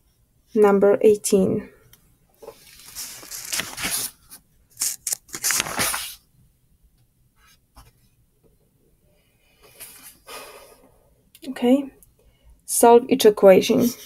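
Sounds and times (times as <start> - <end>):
book pages turning: 2.4 - 6.2.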